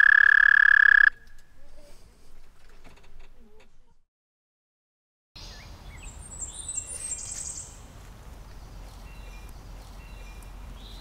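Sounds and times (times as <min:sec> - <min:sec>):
birds chirping and trilling: 0:05.4 - 0:07.8, 0:08.5 - 0:11.0.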